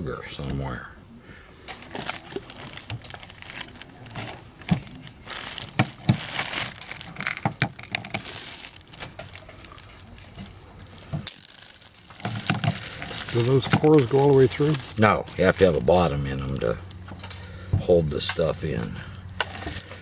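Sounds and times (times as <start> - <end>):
plastic bag crinkling: 1.7 - 17.0, 19.4 - 20.0.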